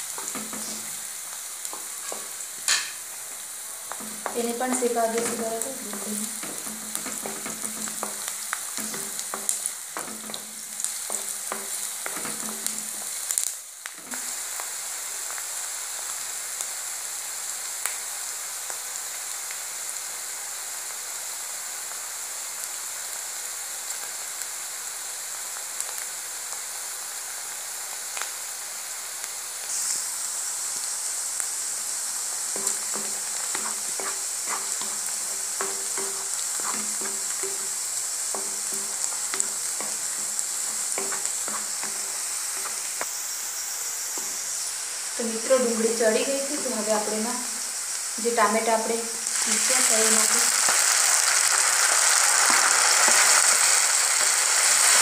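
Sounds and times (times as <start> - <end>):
onion frying in hot oil: 0.0 - 55.0
wooden spatula scraping pan: 0.1 - 1.0, 1.7 - 3.0, 3.9 - 13.1, 32.5 - 43.0.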